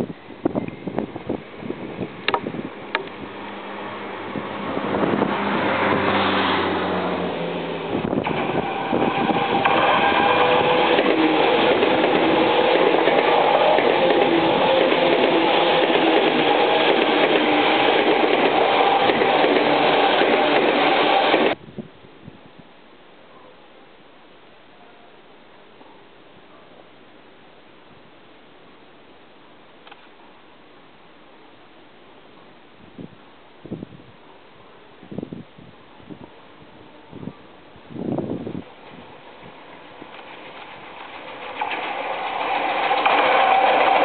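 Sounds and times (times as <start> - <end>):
electric train passing: 1.4 - 21.6, 37.8 - 44.0.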